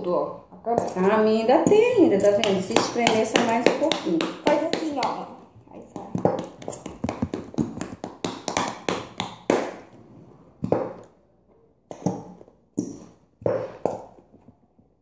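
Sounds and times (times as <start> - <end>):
hands slapping plastic bottles: 1.6 - 5.3, 5.9 - 10.0, 10.6 - 11.2, 11.9 - 14.2.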